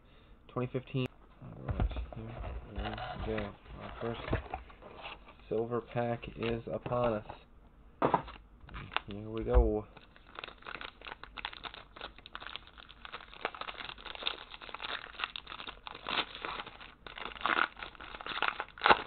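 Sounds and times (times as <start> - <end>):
foil wrapper crinkling: 8.3 - 19.0.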